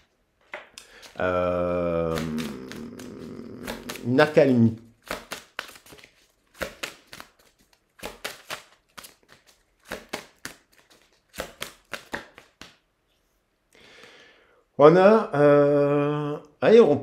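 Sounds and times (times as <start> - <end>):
soft card rustle: 0.0 - 13.5
cards shuffling with clicks: 0.4 - 12.9.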